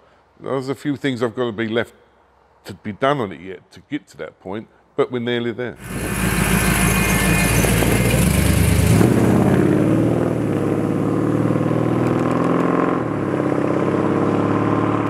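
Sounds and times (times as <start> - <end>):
pickup truck driving past: 5.8 - 15.0.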